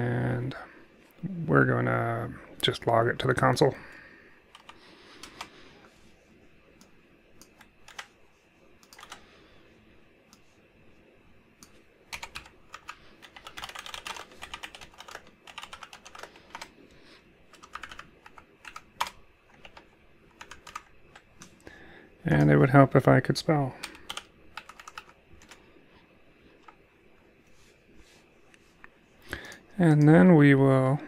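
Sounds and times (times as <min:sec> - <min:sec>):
typing on computer keyboard: 0:04.5 - 0:05.5, 0:07.4 - 0:08.1, 0:08.8 - 0:09.2, 0:11.6 - 0:16.7, 0:17.5 - 0:21.5, 0:23.8 - 0:25.6.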